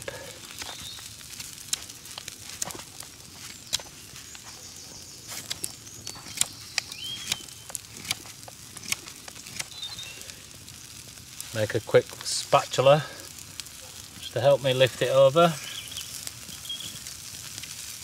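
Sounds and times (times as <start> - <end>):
campfire crackling and popping: 0.0 - 18.0
meat sizzling: 0.0 - 18.0.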